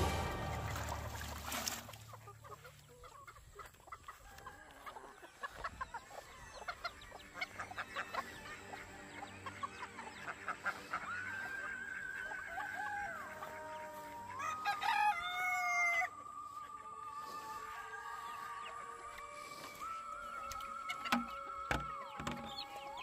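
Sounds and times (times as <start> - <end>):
chickens clucking: 0.0 - 23.0
rooster crowing: 4.1 - 6.2, 12.4 - 16.2.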